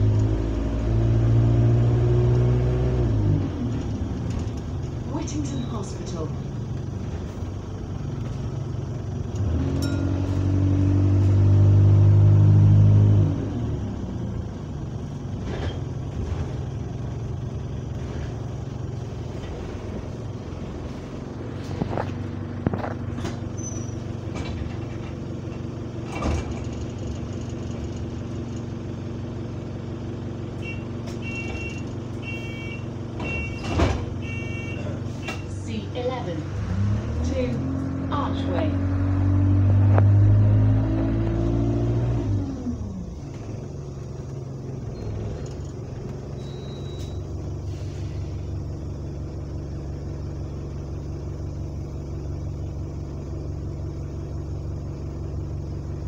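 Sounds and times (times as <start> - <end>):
bus diesel engine revving: 0.0 - 56.0
high door warning beeps: 30.6 - 35.5, 46.4 - 47.3.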